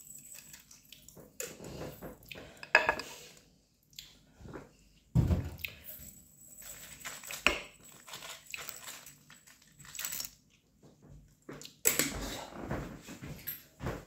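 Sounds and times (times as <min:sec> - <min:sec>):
kitchenware clinks and knocks: 0:00.0 - 0:03.2, 0:05.2 - 0:10.4
kitchenware handling noise: 0:01.3 - 0:03.2.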